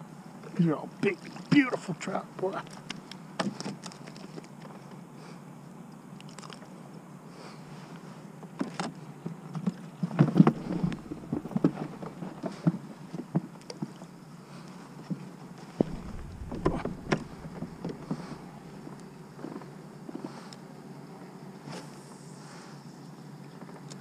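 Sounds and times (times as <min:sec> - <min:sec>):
low steady hum: 0:10.4 - 0:12.6, 0:15.8 - 0:19.2.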